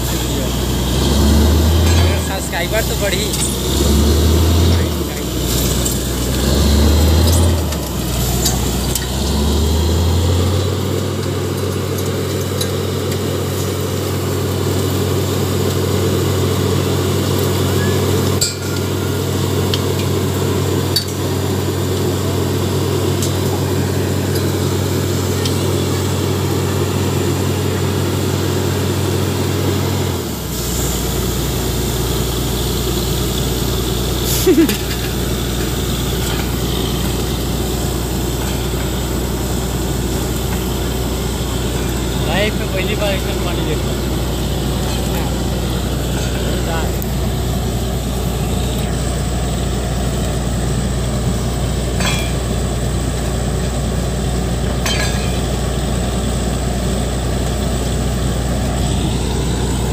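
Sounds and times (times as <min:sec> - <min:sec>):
drilling rig engine running: 0:00.0 - 0:59.9
compressed air blast: 0:30.5 - 0:37.4.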